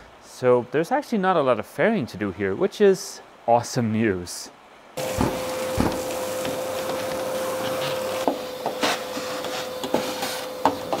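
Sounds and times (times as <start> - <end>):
shop vacuum humming: 5.0 - 11.0.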